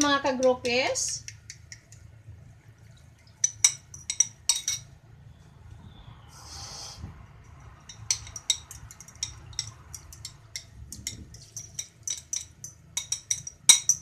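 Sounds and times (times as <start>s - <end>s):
fork clinking against ceramic bowl: 3.4s - 4.9s, 7.8s - 14.0s.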